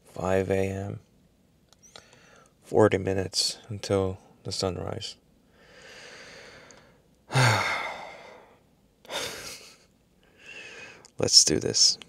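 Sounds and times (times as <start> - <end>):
man sighing heavily: 5.8 - 9.6.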